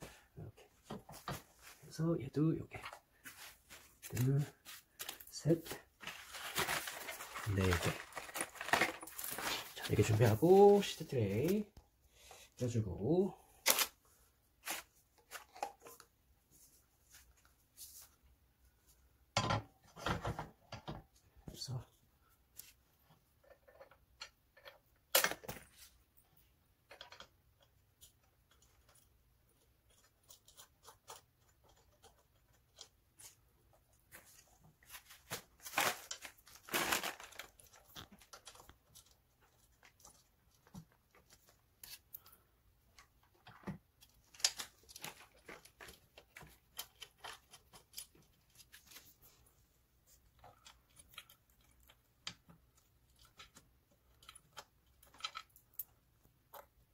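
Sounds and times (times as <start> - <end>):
handling noises: 2.7 - 11.8.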